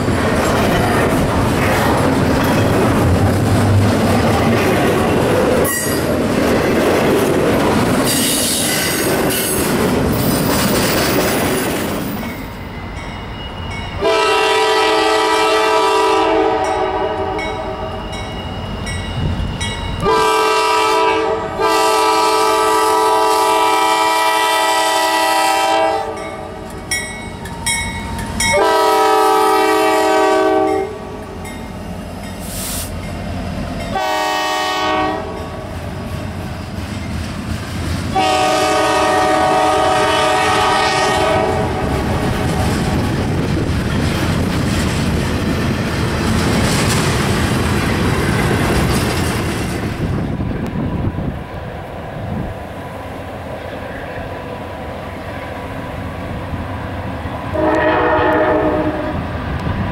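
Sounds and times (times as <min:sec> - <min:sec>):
freight train wheel and rail noise: 0:00.0 - 0:59.9
locomotive air horn blasts: 0:14.0 - 0:18.0, 0:20.0 - 0:26.6, 0:28.5 - 0:31.2, 0:33.9 - 0:35.6, 0:38.1 - 0:42.7, 0:57.5 - 0:59.2.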